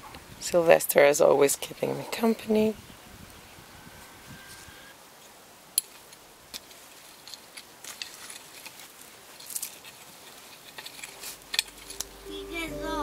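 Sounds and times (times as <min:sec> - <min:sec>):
hand scraping stony soil: 0:05.9 - 0:12.3.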